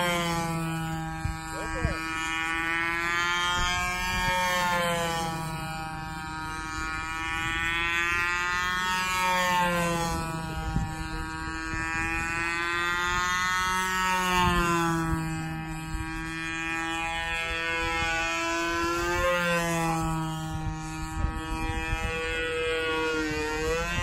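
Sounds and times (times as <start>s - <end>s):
model airplane engine droning: 0.0s - 24.0s.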